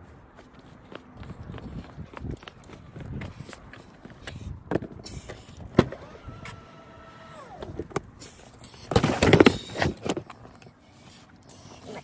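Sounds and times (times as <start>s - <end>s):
electric motor whining: 5.8s - 7.8s
rustling and clattering of gear: 7.6s - 10.8s.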